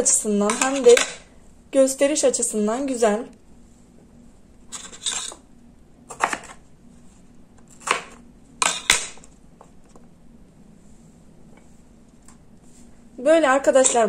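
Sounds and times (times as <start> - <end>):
blade chopping potato on cutting board: 6.1 - 6.6, 7.8 - 9.2.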